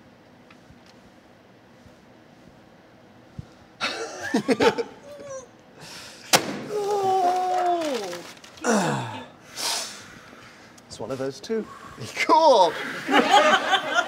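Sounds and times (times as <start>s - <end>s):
hand smacking paper bag: 6.3s - 8.6s
voice saying ooh: 6.7s - 9.3s.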